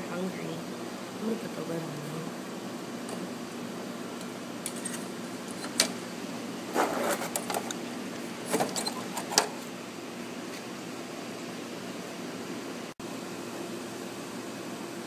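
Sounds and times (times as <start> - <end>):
steady background hum: 0.0 - 15.0
lid clattering and rattling: 6.8 - 7.8.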